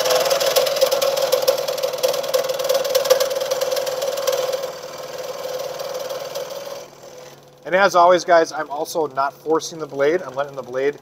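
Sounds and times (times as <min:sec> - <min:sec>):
scroll saw cutting wood: 0:00.0 - 0:11.0.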